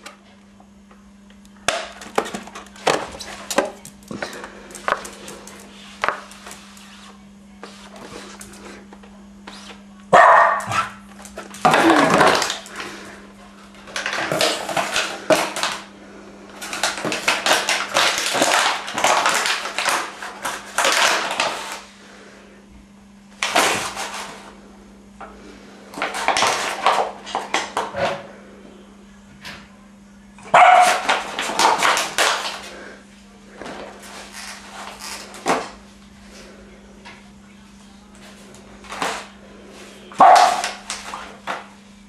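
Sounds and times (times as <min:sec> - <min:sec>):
dog barking: 0:10.1 - 0:11.0, 0:30.5 - 0:31.1, 0:40.2 - 0:40.6
dog crunching plastic bottle: 0:10.7 - 0:13.0, 0:13.7 - 0:15.9, 0:16.5 - 0:21.8, 0:23.4 - 0:24.3, 0:25.9 - 0:27.9, 0:30.5 - 0:32.8, 0:40.2 - 0:41.6.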